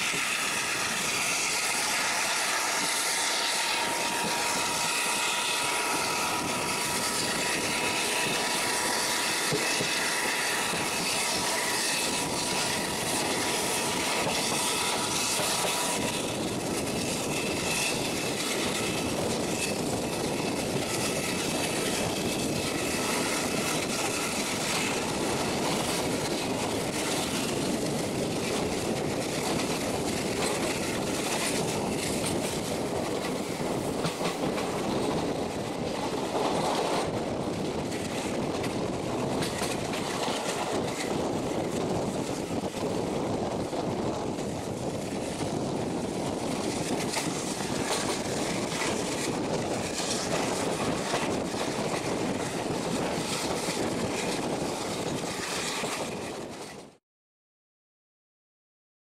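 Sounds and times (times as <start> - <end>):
diesel locomotive working: 0.0 - 57.0
rushing wind: 0.0 - 57.0
wheel-on-rail rumble: 0.0 - 57.0.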